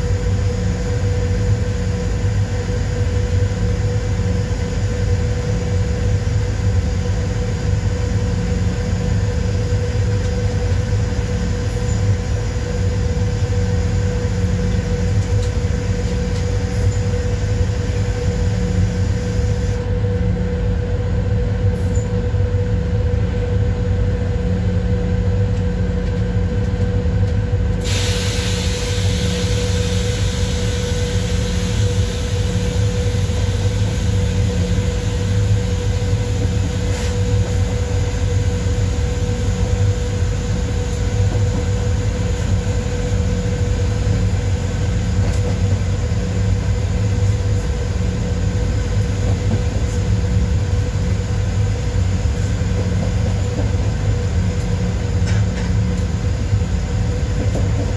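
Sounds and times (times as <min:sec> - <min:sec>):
wheels rumbling on rail: 0:00.0 - 0:57.9
hiss: 0:27.8 - 0:46.4.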